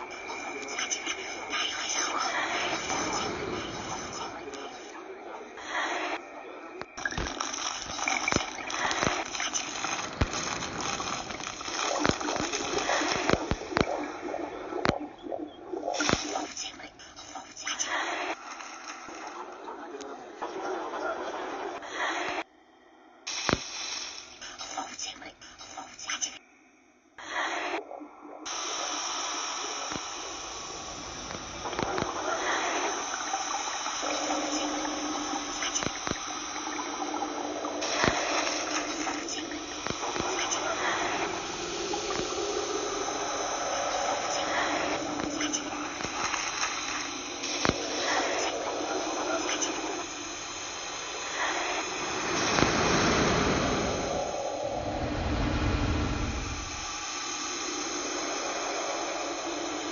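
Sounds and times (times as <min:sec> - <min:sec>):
dense rushing hiss: 0:00.0 - 0:13.9, 0:28.5 - 0:59.9
low steady hum: 0:00.0 - 0:20.3, 0:28.2 - 0:59.9
sharp clicks and crackles: 0:06.8 - 0:14.2, 0:33.8 - 0:54.0
sharp clicks: 0:06.9 - 0:14.0.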